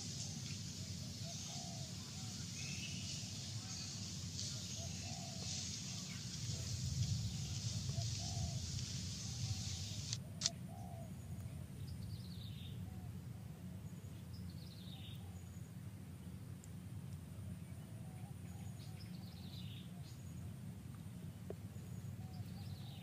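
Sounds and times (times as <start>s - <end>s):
steady high hiss: 0.0s - 10.8s
low steady rumble: 0.0s - 23.0s.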